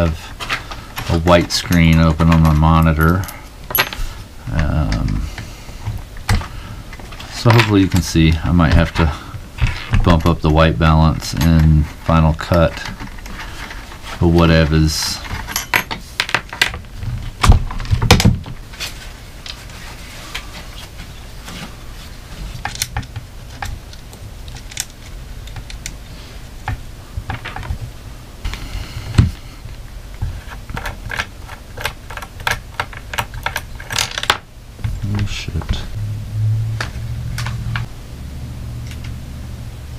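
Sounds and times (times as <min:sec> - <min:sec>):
plastic and metal parts knocking: 0:30.2 - 0:34.4.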